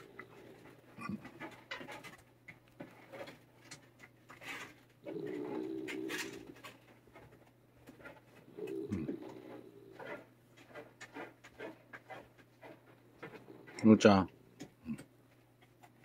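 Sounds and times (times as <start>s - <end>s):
cat growling: 0.0s - 1.6s, 5.0s - 6.7s, 8.4s - 10.3s
cat hissing: 5.0s - 6.5s, 8.5s - 10.2s.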